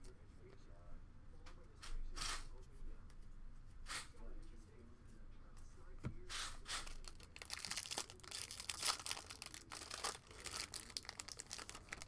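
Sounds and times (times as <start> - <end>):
foil wrapper crinkling and tearing: 6.8 - 12.0.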